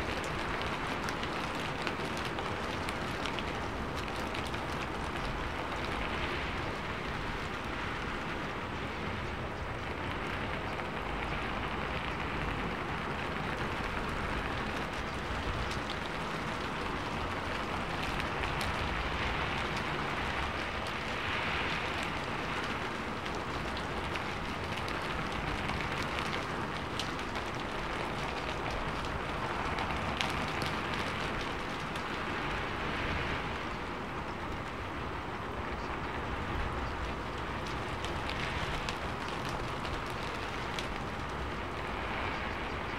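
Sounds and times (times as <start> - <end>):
steady hiss of noise: 0.0 - 42.9.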